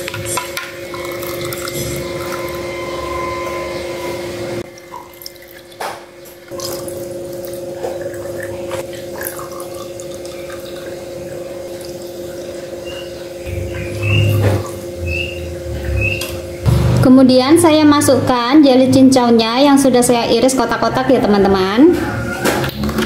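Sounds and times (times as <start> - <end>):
liquid pouring into glass jars: 0.9 - 2.7, 4.7 - 12.2.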